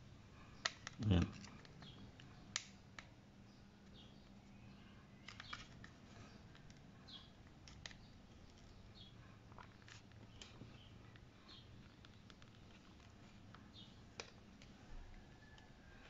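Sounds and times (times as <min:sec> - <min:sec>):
plastic clicks and creaks: 0:05.2 - 0:06.8, 0:11.8 - 0:13.6.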